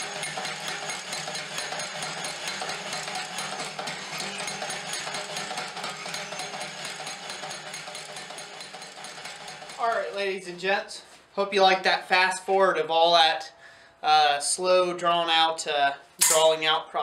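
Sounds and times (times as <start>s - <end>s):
power hammer striking hot metal: 0.0s - 9.8s, 16.2s - 16.5s.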